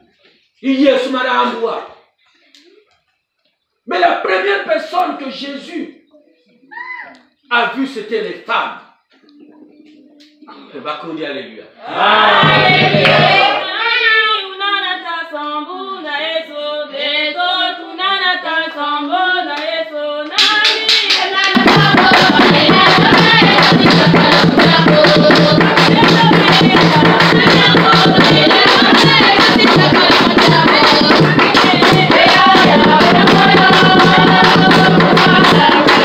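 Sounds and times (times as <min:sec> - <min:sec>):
congregation singing a hymn: 0:11.8 - 0:13.8, 0:15.7 - 0:36.0
low drum beat: 0:12.2 - 0:13.6, 0:21.6 - 0:36.0
sharp percussion strokes: 0:12.3 - 0:13.7, 0:20.8 - 0:36.0.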